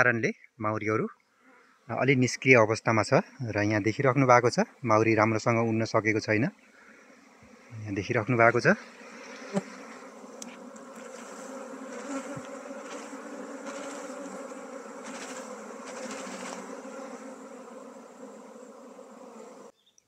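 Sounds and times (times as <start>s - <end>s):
bees buzzing: 4.1s - 19.8s.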